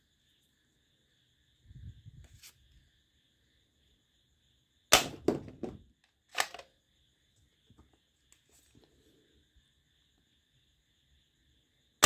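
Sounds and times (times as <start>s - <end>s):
plastic toy rifle clacks: 6.3s - 6.7s.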